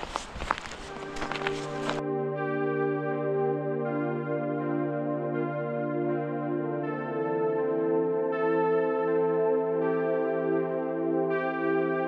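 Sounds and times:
boots crunching on snow: 0:00.0 - 0:02.0
ambient synthesizer music: 0:00.9 - 0:12.0.

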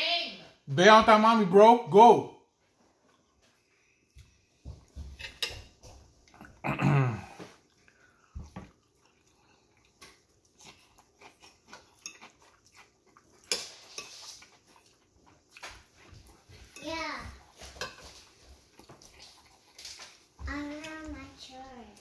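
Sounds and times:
fork scraping ceramic plate: 0:13.4 - 0:15.0, 0:17.5 - 0:19.4.

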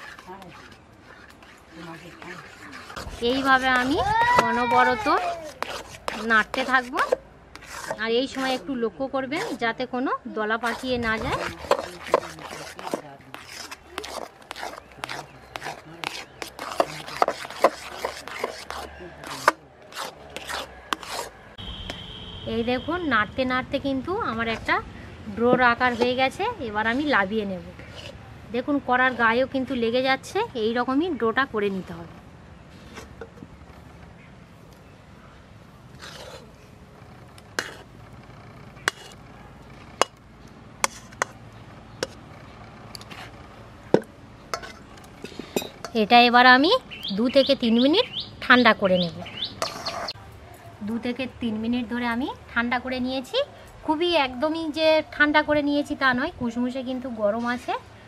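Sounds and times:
metal spoon scraping a pot: 0:00.0 - 0:08.8, 0:10.6 - 0:21.4, 0:25.5 - 0:27.1, 0:27.8 - 0:28.2, 0:36.0 - 0:36.6, 0:37.3 - 0:40.2, 0:40.8 - 0:41.4, 0:42.0 - 0:43.5, 0:44.5 - 0:46.1, 0:49.6 - 0:50.2.

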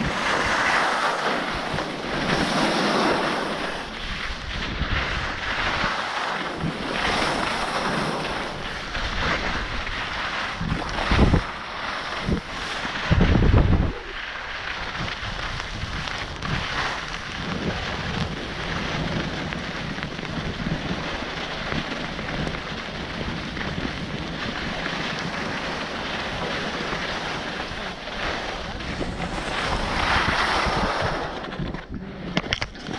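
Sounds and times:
skis hissing over snow: 0:00.0 - 0:31.7
wind rushing over microphone: 0:00.0 - 0:32.9.

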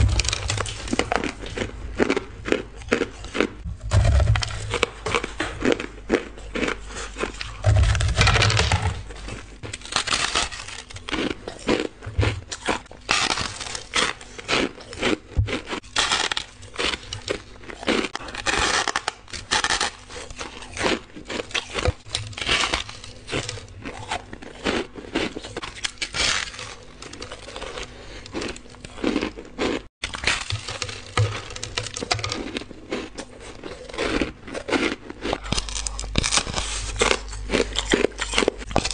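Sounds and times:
ice being bitten and chewed: 0:00.0 - 0:38.9.

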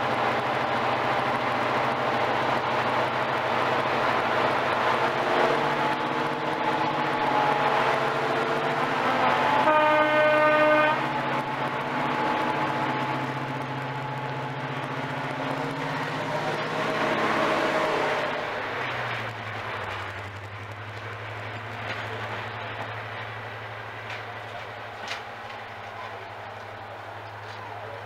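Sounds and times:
diesel locomotive engine hum: 0:00.0 - 0:28.0
train horn: 0:07.1 - 0:11.5.

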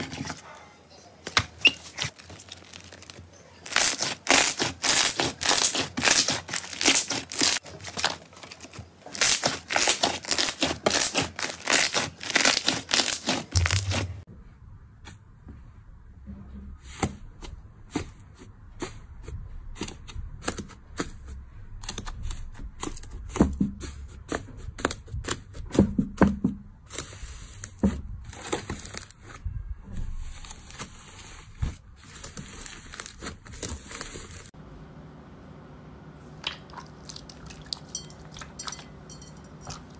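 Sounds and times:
slime squishing: 0:01.6 - 0:14.2
slime crackling and popping: 0:02.6 - 0:08.2, 0:09.1 - 0:14.2.

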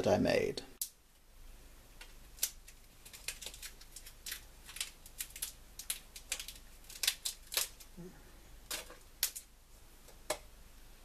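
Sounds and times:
chestnut shells cracking: 0:02.0 - 0:08.0, 0:08.6 - 0:10.5.

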